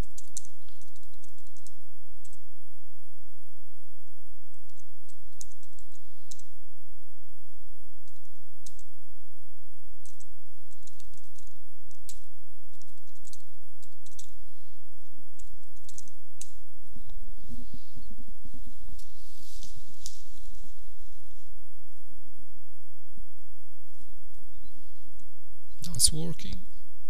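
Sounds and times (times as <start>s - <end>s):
faint high whine: 0.0s - 27.0s
low hum: 0.0s - 27.0s
keyboard typing clicks: 4.6s - 6.5s, 8.0s - 8.9s, 10.0s - 14.4s, 15.4s - 16.6s.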